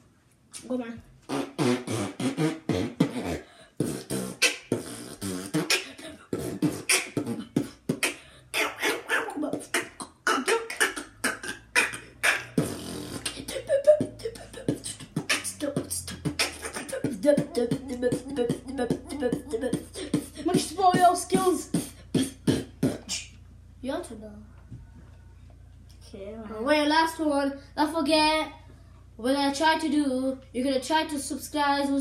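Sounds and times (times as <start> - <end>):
boy beatboxing: 0.5 - 24.2, 29.3 - 32.0.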